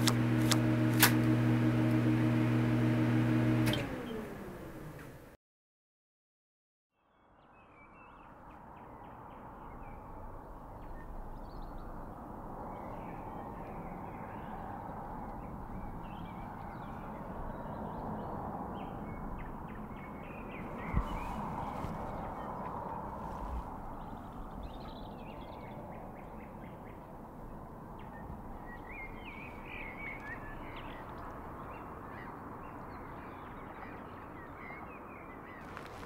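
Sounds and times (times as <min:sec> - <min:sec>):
distant traffic hum: 0:08.5 - 0:36.0
birds calling: 0:18.8 - 0:27.1, 0:28.0 - 0:36.0.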